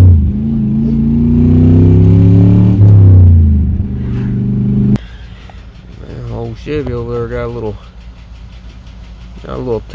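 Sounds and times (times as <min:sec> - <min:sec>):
engine accelerating: 0:00.0 - 0:05.0.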